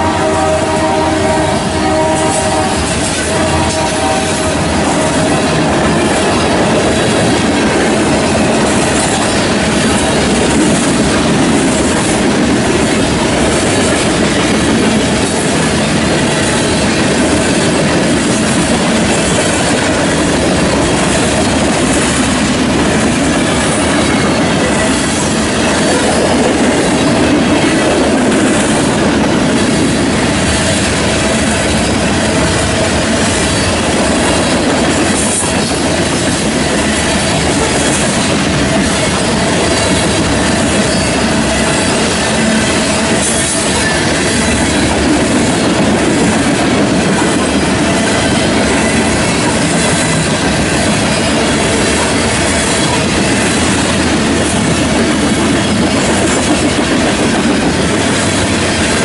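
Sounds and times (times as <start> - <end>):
freight train wheels on rails: 0.0 - 59.0.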